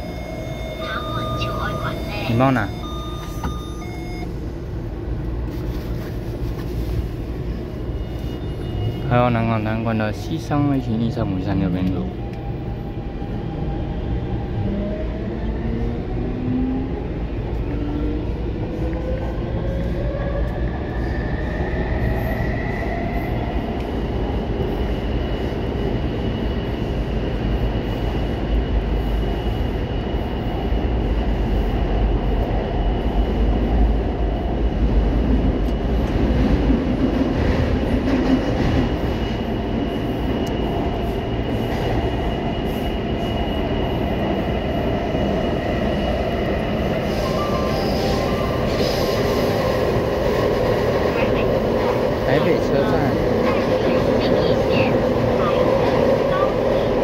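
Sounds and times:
train traction motor whine: 0.0 - 4.9
steel wheels rumbling on rail: 11.8 - 57.0.

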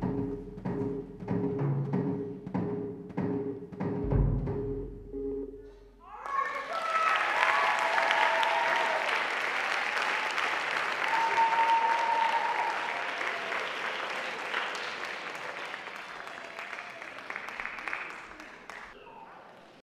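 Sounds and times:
audience applause: 6.1 - 19.7.

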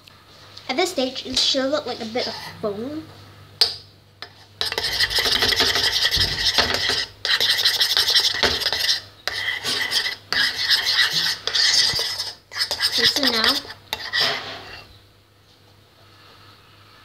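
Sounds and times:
spoon scraping bowl: 2.0 - 2.6, 4.2 - 15.0.

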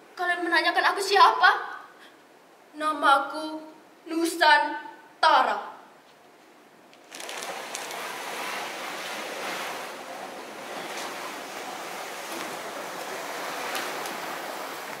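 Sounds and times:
ocean waves washing: 7.1 - 15.0.

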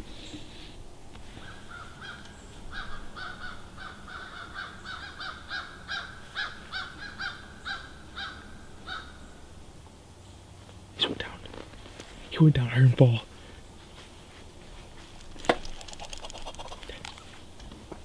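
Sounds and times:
crows cawing: 1.4 - 9.3.

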